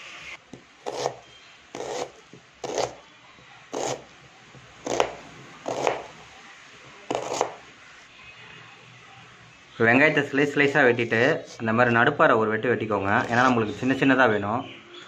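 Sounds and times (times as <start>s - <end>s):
knife slicing onion on board: 0.8s - 3.0s, 3.7s - 6.2s, 7.1s - 7.6s.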